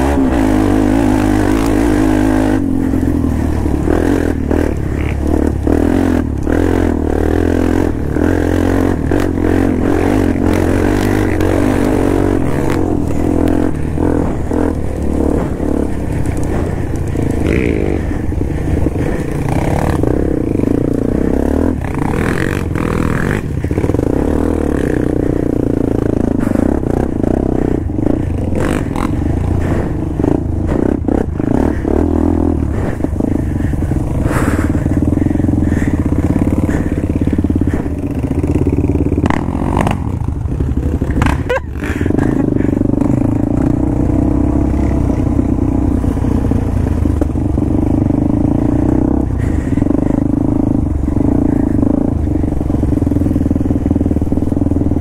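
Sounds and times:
vehicle rattles and knocks: 0.0s - 44.0s
atv engine running: 0.0s - 55.0s.

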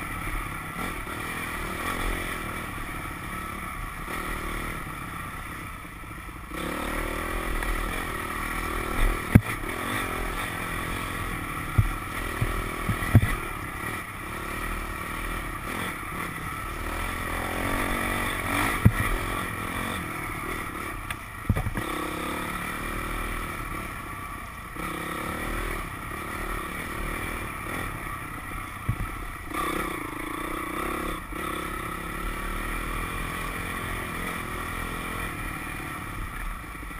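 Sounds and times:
dirt bike engine revving: 0.0s - 5.7s, 6.5s - 24.0s, 24.6s - 36.9s
sharp knocks and clatter: 9.0s - 9.6s, 11.7s - 13.4s, 21.4s - 21.9s.

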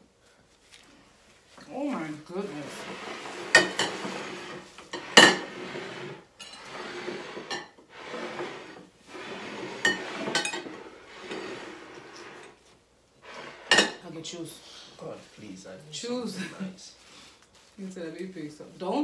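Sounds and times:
bowls scraping across a table: 2.1s - 14.4s
bowls clinking: 9.7s - 12.6s, 13.6s - 14.0s.

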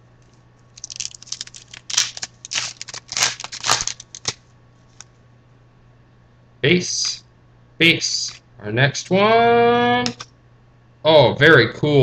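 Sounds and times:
card pack wrapper tearing: 0.8s - 4.4s.

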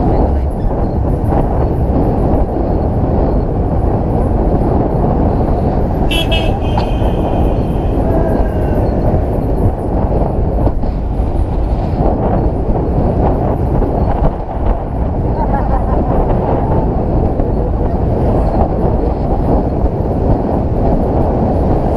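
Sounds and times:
vehicle engine and road noise: 0.0s - 21.9s
vehicle horn toot: 6.1s - 9.1s.

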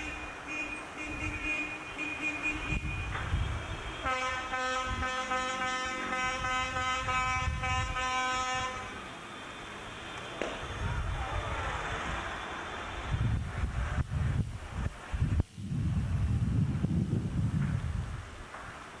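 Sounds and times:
car horn steady note: 0.0s - 9.1s
short car horn: 4.0s - 9.0s.

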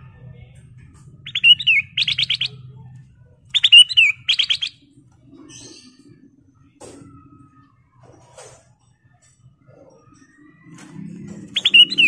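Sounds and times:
bird singing whistled phrases: 1.3s - 2.6s, 3.5s - 4.8s, 11.6s - 12.0s.

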